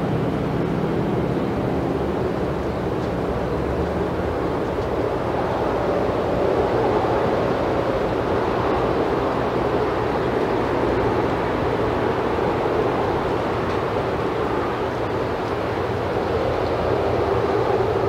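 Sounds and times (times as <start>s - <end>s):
steady outdoor rushing noise: 0.0s - 18.0s.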